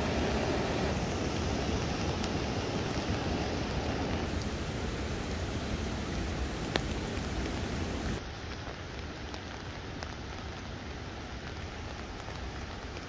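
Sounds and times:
rain falling on trees: 0:00.0 - 0:13.0.

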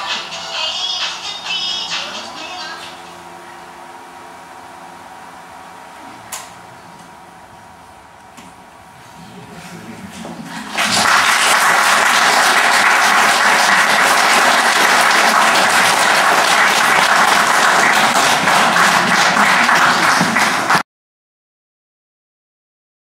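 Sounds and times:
audience applauding: 0:10.4 - 0:20.8.

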